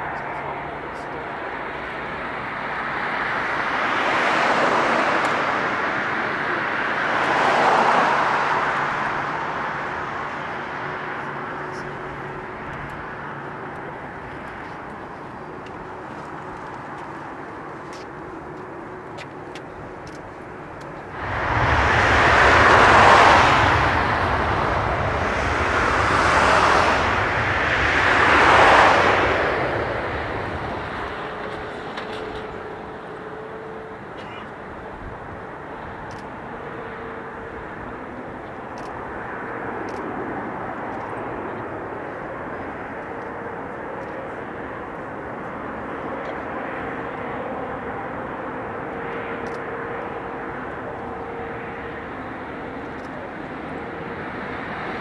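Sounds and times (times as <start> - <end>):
jet engines roaring: 0.0 - 55.0
jet engine hiss: 18.1 - 33.5.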